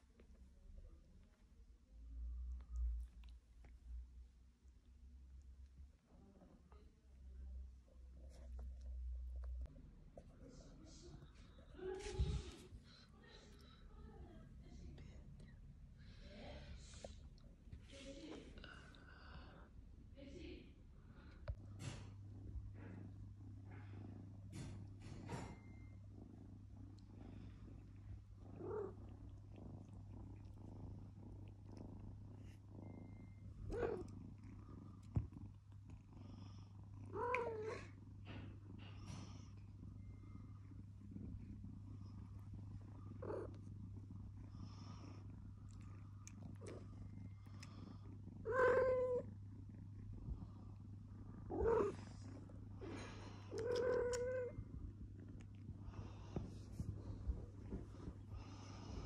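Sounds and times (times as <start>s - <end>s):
cats purring: 0.0s - 59.0s
cat meowing: 48.5s - 49.2s, 53.6s - 54.6s.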